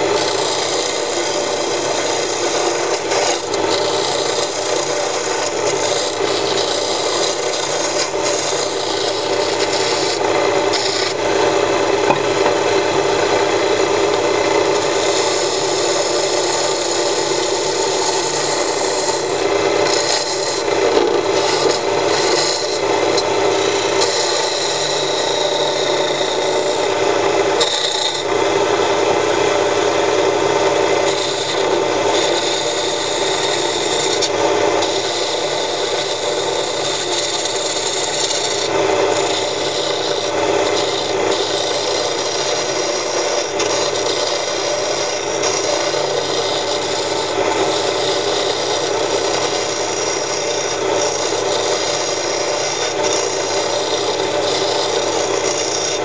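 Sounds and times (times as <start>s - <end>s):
lathe motor humming: 0.0s - 56.0s
turning tool scraping wood: 0.0s - 56.0s.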